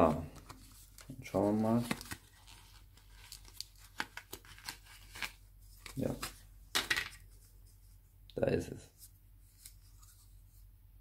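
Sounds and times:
tearing crinkle: 1.8 - 6.4.

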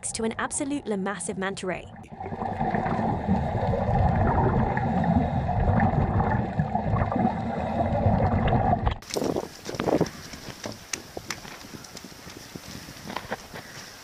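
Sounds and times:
exhaled bubbles: 1.8 - 9.1
underwater rumble and gurgling: 1.9 - 9.1.

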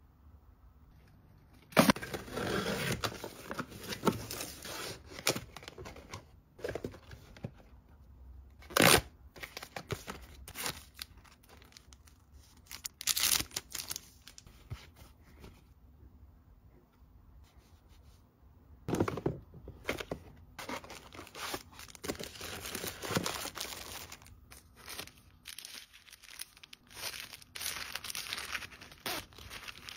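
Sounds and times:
cardboard and packets crinkling: 9.4 - 14.5, 19.9 - 29.9.

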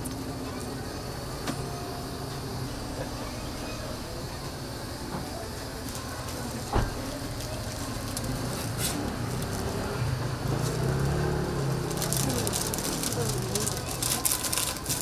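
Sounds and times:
street noise: 0.0 - 15.0.

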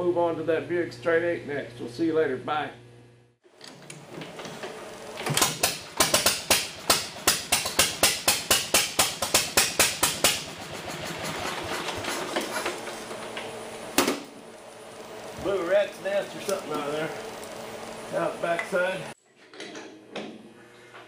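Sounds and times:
single-cylinder engine starting: 3.5 - 8.0, 10.0 - 19.1.

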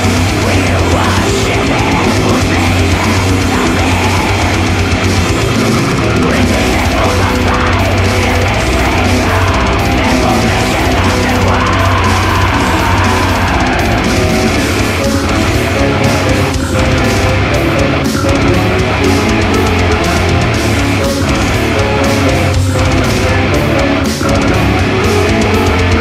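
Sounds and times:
distorted electric guitars: 0.0 - 26.0
drum kit: 0.0 - 26.0.

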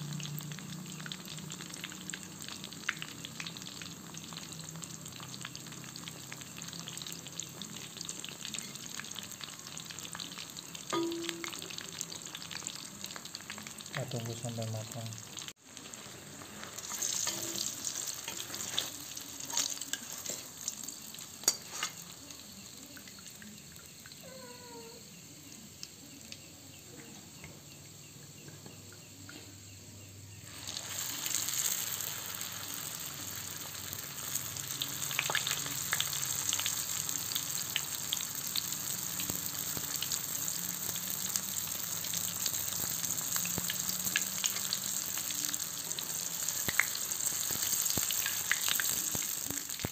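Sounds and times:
food deep-frying in oil: 0.0 - 49.9
metal spatula scraping wok: 16.8 - 20.6.

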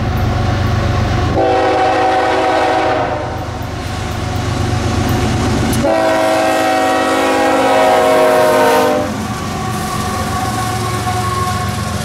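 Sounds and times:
freight train rumble and clatter: 0.0 - 12.0
locomotive air horn blast: 1.3 - 3.5, 5.8 - 12.0.

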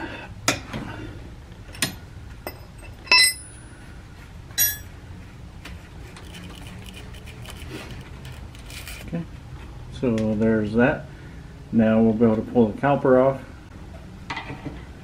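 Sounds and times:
metal wrenches clinking: 1.7 - 3.6, 4.6 - 4.9.

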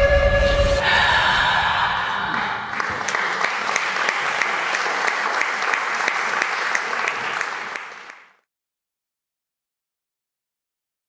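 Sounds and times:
audience applauding: 1.8 - 8.4.

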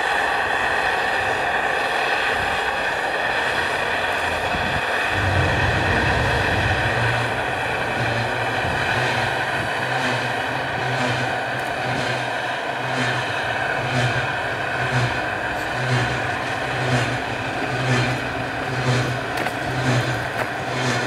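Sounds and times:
steam locomotive hissing: 0.0 - 21.0
low hum: 5.0 - 11.8.

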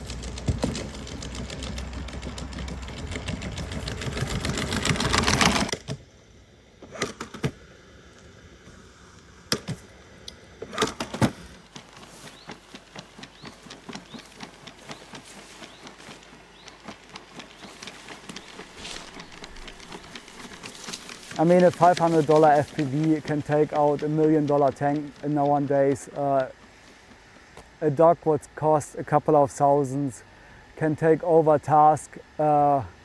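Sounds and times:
robot motors clicking and whirring: 10.8 - 26.6
light ticks in grass: 11.8 - 25.8.

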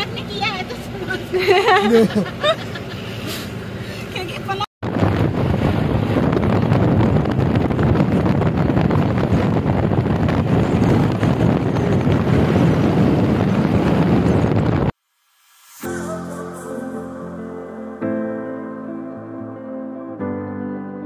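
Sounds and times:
wind buffeting microphone: 4.4 - 15.0.

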